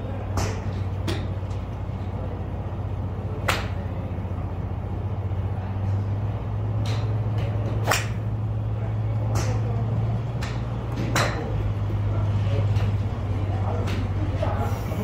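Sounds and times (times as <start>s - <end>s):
steady low hum: 0.0s - 15.0s
golf club striking ball: 7.8s - 8.3s.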